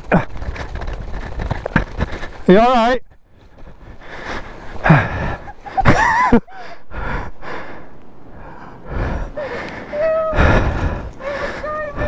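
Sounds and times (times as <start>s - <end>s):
person breathing hard: 3.8s - 5.9s, 6.5s - 12.0s.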